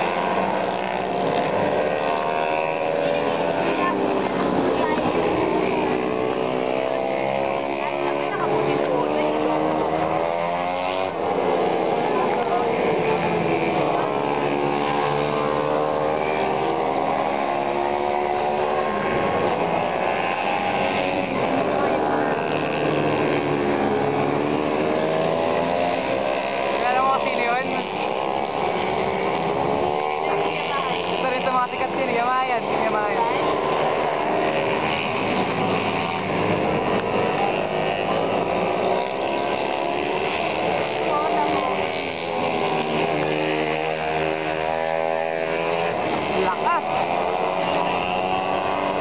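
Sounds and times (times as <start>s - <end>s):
racing motorcycles passing: 0.0s - 49.0s.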